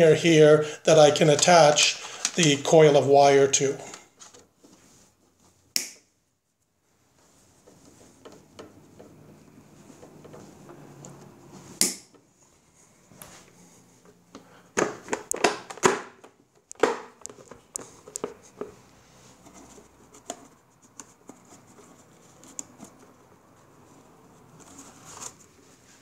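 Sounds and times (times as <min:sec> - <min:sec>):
plastic cover clicks and knocks: 0:14.8 - 0:18.4.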